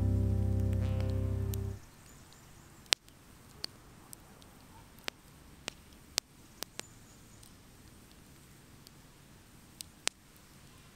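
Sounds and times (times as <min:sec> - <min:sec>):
campfire crackling: 0:02.8 - 0:10.9.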